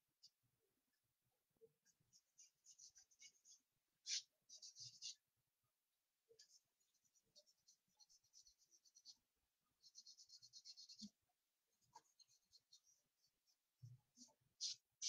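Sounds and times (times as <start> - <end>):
charcoal scratching on paper: 1.9 - 5.2, 6.4 - 11.2, 11.8 - 15.0.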